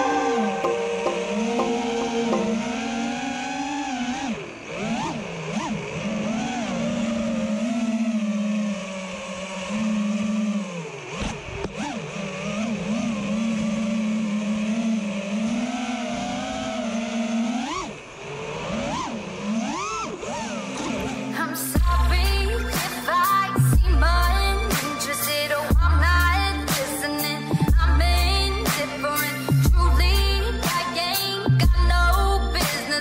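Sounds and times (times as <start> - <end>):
quadcopter motors whining: 4.4 - 21.3.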